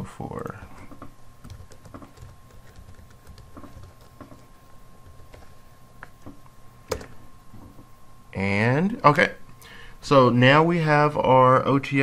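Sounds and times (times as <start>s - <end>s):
faint high hum: 0.0s - 12.0s
keyboard typing: 0.7s - 5.5s.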